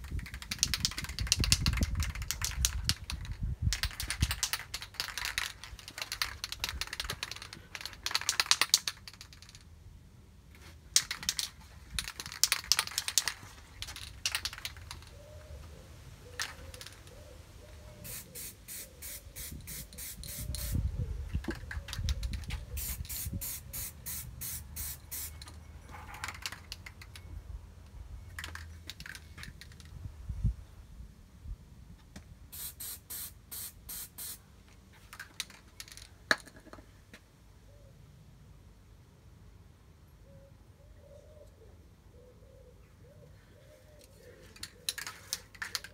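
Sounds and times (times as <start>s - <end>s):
aerosol can spraying: 18.0s - 20.8s, 22.8s - 25.3s, 32.6s - 34.4s.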